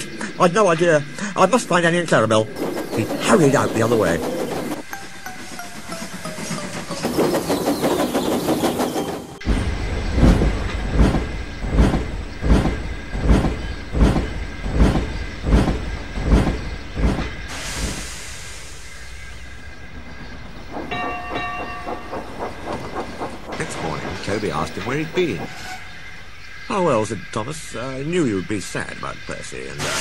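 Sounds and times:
steam locomotive chuffing: 2.6 - 26.4
steam hissing: 15.6 - 19.9, 29.8 - 30.0.

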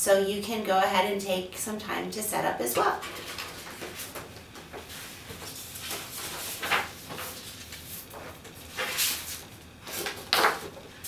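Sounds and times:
paper rustling: 3.0 - 10.8.

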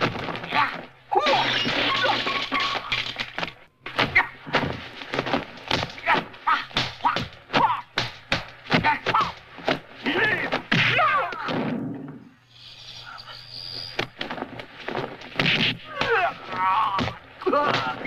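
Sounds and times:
punch and kick impacts: 3.9 - 11.9, 15.3 - 16.3.

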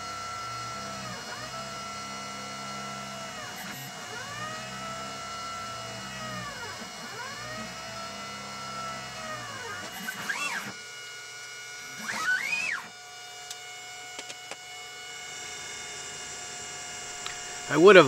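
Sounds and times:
stepper motors whining: 0.0 - 18.0
steady machine hum: 12.9 - 18.0.

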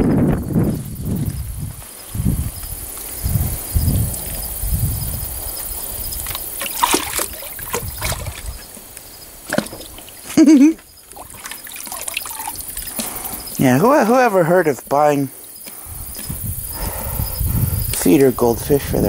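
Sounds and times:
water splashing in a metal tank: 6.2 - 8.6, 9.4 - 10.3, 11.1 - 13.1.

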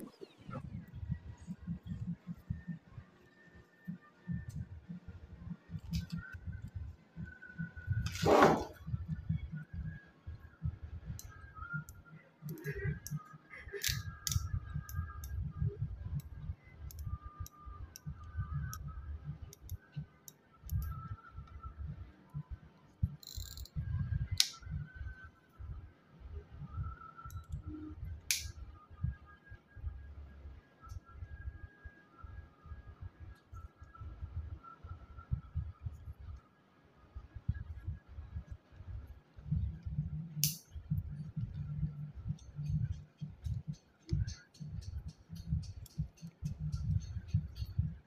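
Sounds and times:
fishing reel clicks: 23.1 - 23.8.

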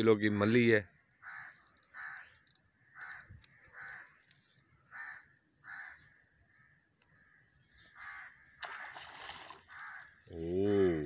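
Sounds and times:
crow cawing: 1.2 - 4.2, 4.9 - 10.3.

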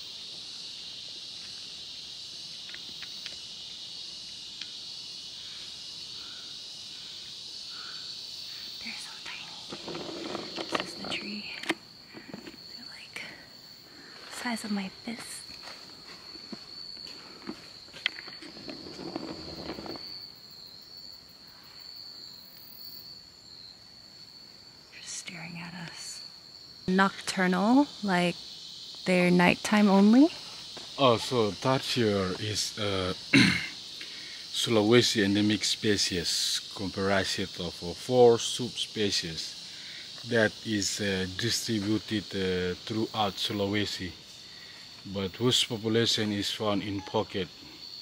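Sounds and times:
insect chorus drone: 0.0 - 48.0
faint ticks: 4.6 - 4.8
muffled rustling: 15.7 - 20.2.

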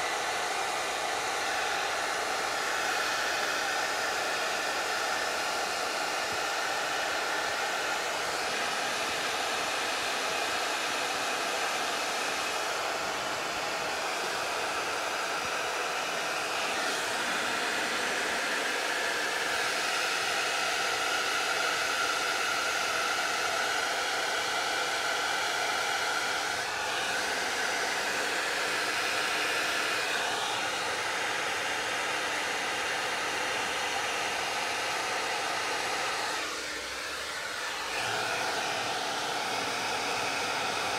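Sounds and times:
hair dryer blowing: 0.0 - 40.9.

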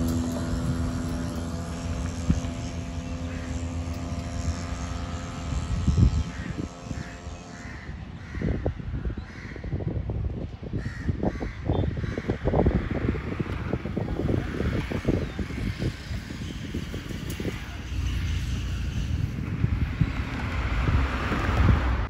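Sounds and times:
low engine hum: 0.0 - 8.2, 12.6 - 22.0
wind buffeting microphone: 0.0 - 22.0
crows cawing: 3.1 - 3.8, 6.3 - 9.8, 10.8 - 12.6.

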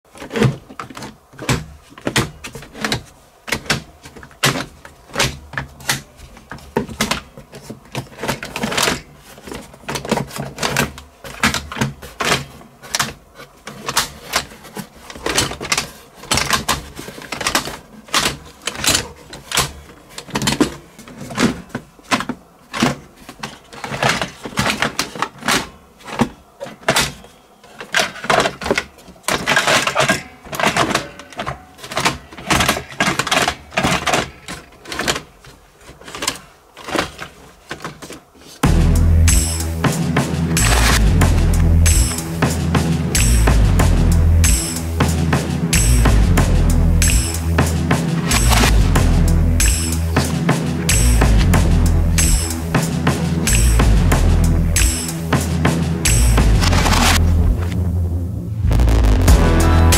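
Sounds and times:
plastic toy guns clattering: 0.1 - 38.6, 56.6 - 57.2.

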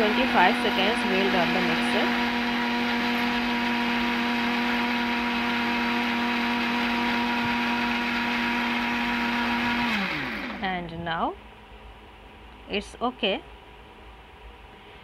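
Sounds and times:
mixer grinder whirring: 0.0 - 10.8.

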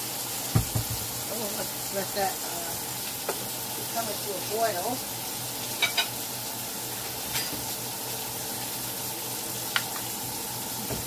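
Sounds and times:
pot of water hissing: 0.0 - 11.0
spatula clinking on pot: 5.8 - 6.1.

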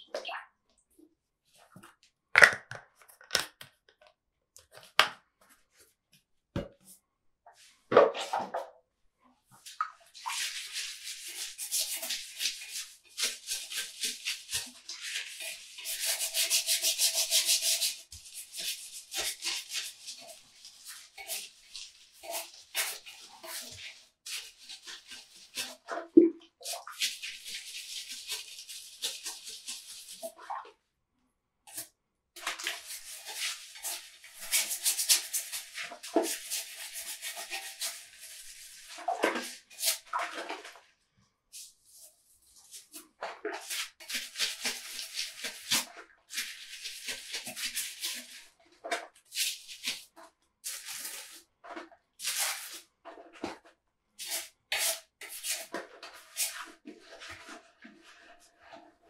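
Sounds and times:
toilet brush scrubbing bowl: 9.4 - 30.8, 31.7 - 40.9, 41.5 - 59.0.

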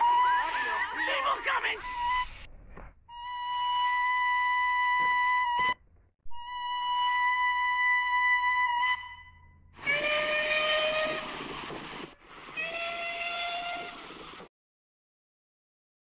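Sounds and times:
single-note engine whistle: 3.1 - 11.3
steam locomotive whistle blasts: 6.4 - 11.7, 12.3 - 14.3
steam hissing: 9.8 - 14.5.

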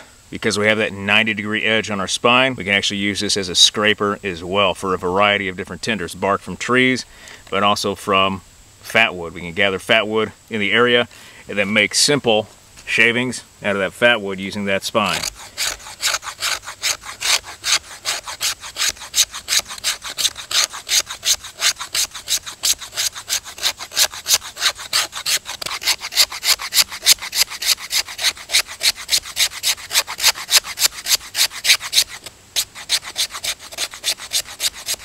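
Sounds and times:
knife scraping wood stick: 14.9 - 35.0.

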